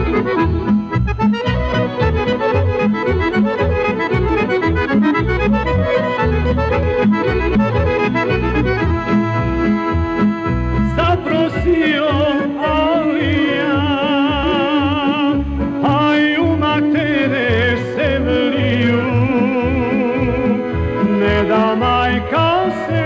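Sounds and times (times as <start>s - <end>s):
pulsing bass beat: 0.0s - 11.9s
accordions playing folk music: 0.0s - 23.0s
man singing with vibrato: 10.4s - 23.0s.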